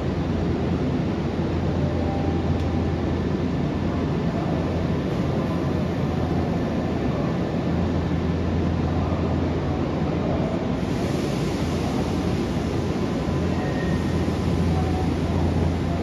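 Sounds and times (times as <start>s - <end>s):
electric train humming: 0.0s - 16.0s.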